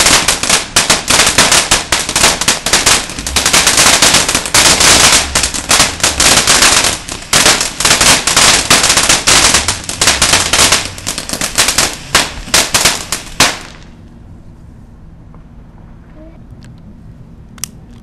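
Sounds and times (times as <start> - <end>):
firework crackling pops: 0.0 - 14.0.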